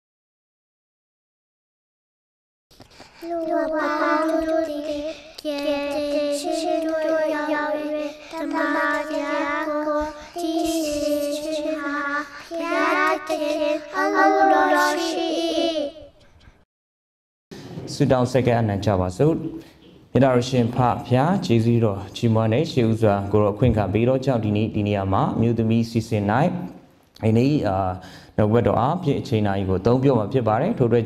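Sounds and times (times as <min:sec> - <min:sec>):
person singing jingle: 0:13.9 - 0:15.9.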